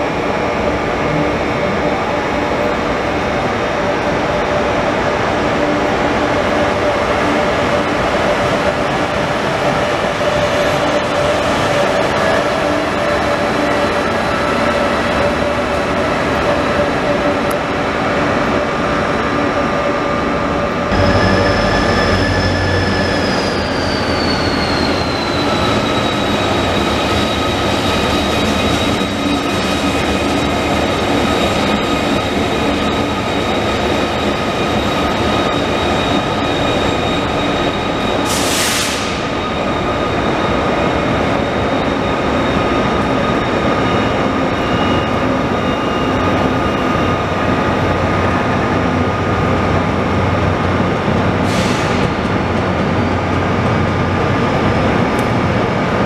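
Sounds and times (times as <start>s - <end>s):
electric train whine and rolling: 0.0s - 56.0s
wheels squealing on rails: 0.2s - 56.0s
high whine sliding down: 20.9s - 31.8s.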